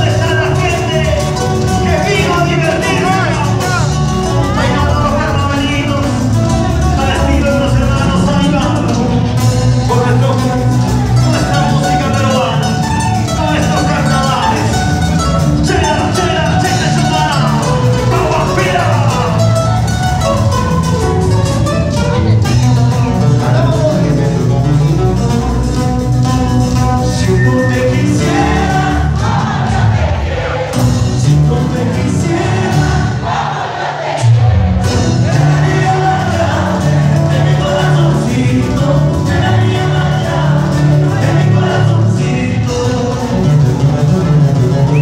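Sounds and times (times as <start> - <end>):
strong bass beat: 0.0 - 33.4
crowd: 0.0 - 45.0
live band music: 0.0 - 45.0
person singing: 26.8 - 29.4, 35.3 - 43.9.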